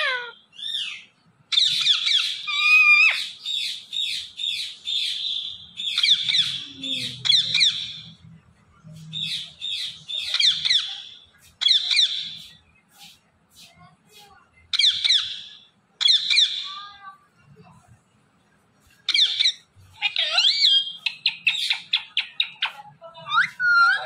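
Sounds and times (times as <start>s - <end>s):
parakeet chirping and squawking: 0.0s - 8.2s, 9.2s - 12.6s, 14.7s - 16.8s, 19.1s - 24.0s.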